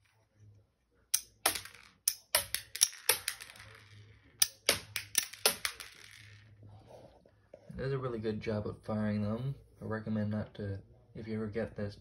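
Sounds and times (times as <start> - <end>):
plastic rockets clattering on floor: 1.2 - 6.6.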